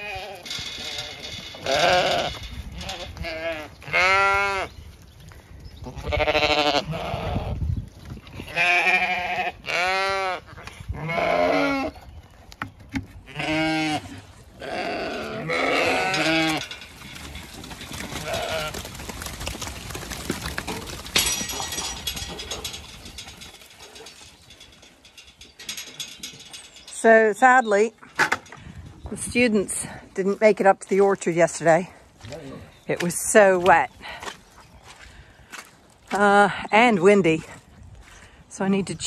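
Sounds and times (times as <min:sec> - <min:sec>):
sheep bleating: 0:00.0 - 0:04.7, 0:05.9 - 0:07.5, 0:08.4 - 0:11.9, 0:13.3 - 0:16.6.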